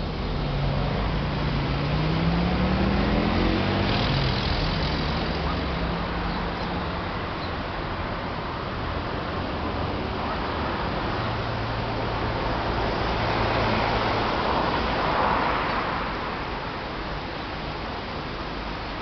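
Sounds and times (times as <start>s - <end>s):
road traffic: 0.0s - 19.0s
vehicle engine speeding up: 0.6s - 5.5s.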